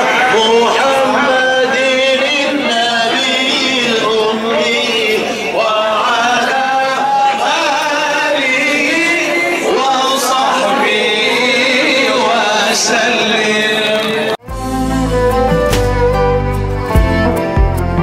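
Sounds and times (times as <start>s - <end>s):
men chanting slow melody: 0.1s - 14.4s
music with strings and deep bass: 14.4s - 18.0s.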